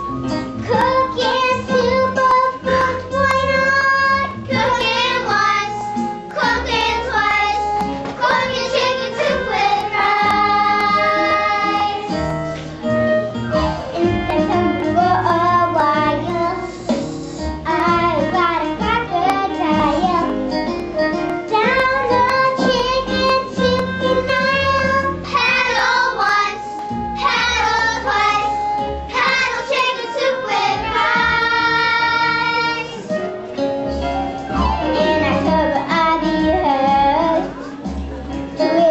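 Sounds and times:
instrumental accompaniment: 0.0 - 38.9
children singing: 0.7 - 12.4, 21.6 - 33.1.

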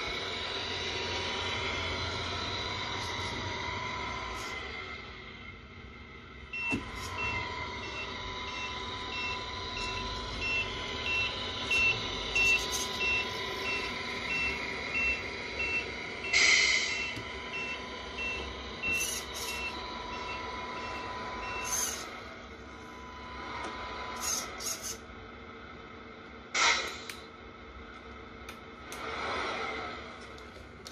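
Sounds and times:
engine hum: 0.0 - 26.0
reversing beeps: 6.5 - 22.1.

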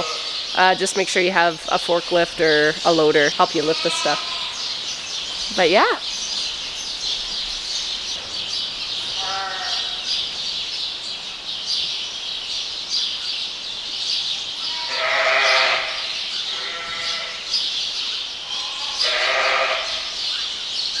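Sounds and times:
sheep bleating: 0.0 - 0.5, 3.5 - 4.7, 9.2 - 10.1, 14.6 - 17.5, 18.5 - 20.1
small birds chirping: 0.0 - 21.0.

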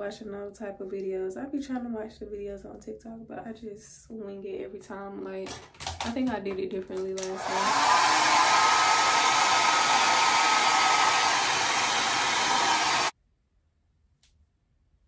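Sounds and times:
hair dryer blowing: 7.2 - 13.2.

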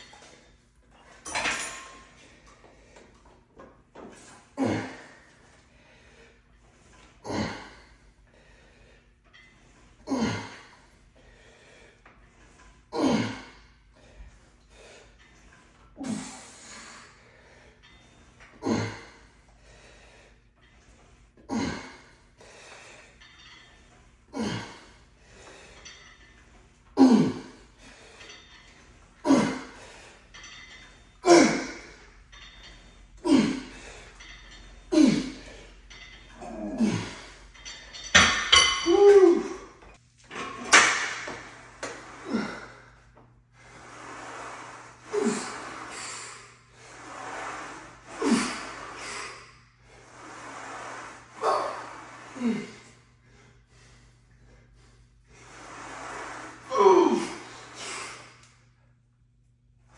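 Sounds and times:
man grunting: 4.6 - 5.2, 7.2 - 7.8, 10.1 - 10.6, 12.9 - 13.5, 18.6 - 19.1, 27.0 - 27.6, 33.2 - 33.7, 34.9 - 35.4, 36.4 - 37.3, 38.8 - 39.8, 51.4 - 52.8, 56.7 - 57.6.

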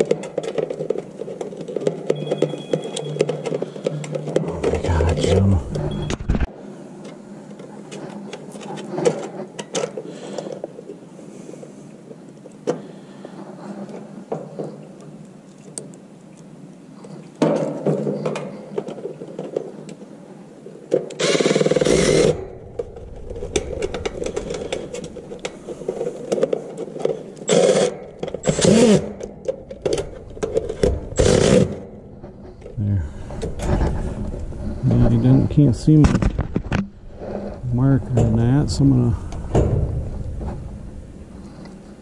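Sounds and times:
handling small parts: 20.6 - 32.8
cordless screwdriver whirring: 21.2 - 22.4, 27.5 - 29.1, 31.2 - 31.8.

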